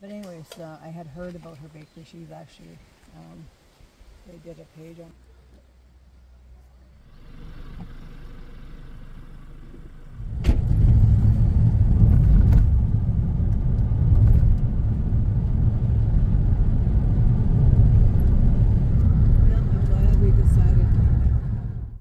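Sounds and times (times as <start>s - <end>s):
vehicle engine and road rumble: 0.0s - 22.0s
low hum: 5.1s - 22.0s.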